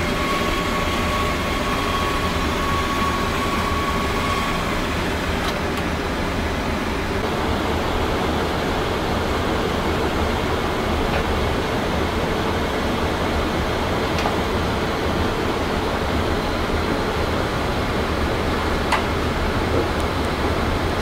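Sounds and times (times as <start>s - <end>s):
steady rushing noise: 4.5s - 21.0s.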